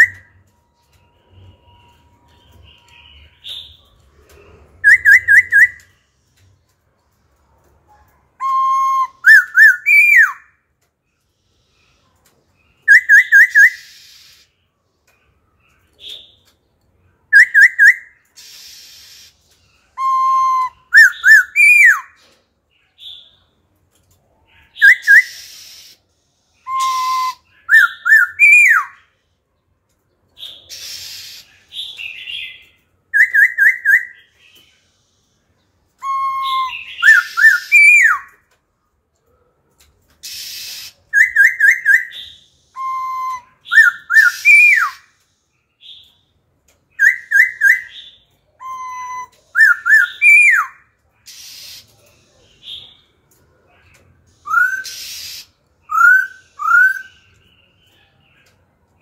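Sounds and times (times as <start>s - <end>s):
bird singing whistled notes: 0.0s - 4.0s, 4.8s - 6.0s, 8.4s - 10.6s, 12.6s - 14.6s, 17.3s - 22.3s, 24.6s - 26.0s, 26.6s - 29.1s, 30.4s - 34.8s, 36.0s - 38.4s, 40.2s - 46.2s, 46.9s - 51.9s, 54.4s - 58.0s
harsh raspy bird notes: 30.6s - 34.4s, 36.0s - 38.4s, 40.2s - 45.1s, 47.0s - 53.1s, 54.4s - 57.4s.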